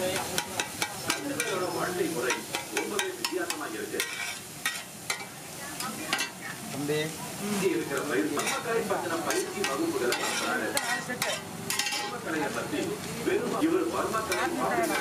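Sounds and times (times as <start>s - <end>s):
metal spatula scraping on iron pan: 0.0s - 6.4s, 8.2s - 12.4s, 14.1s - 15.0s
food sizzling: 0.0s - 15.0s.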